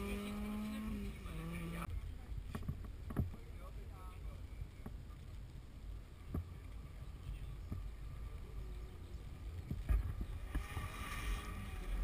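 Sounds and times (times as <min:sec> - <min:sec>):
rally car engine approaching: 0:00.0 - 0:01.9
low wind rumble on microphone: 0:00.0 - 0:12.0.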